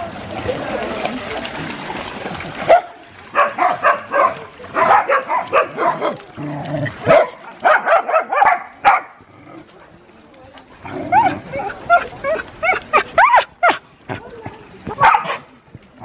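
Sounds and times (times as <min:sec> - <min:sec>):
dogs barking and yipping: 0:02.6 - 0:06.4, 0:07.0 - 0:09.2, 0:10.8 - 0:14.3, 0:14.9 - 0:15.5.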